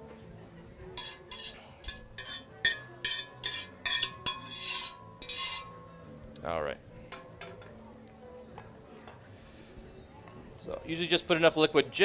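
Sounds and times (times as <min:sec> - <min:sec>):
metal spoon scraping strainer: 0:01.0 - 0:05.8.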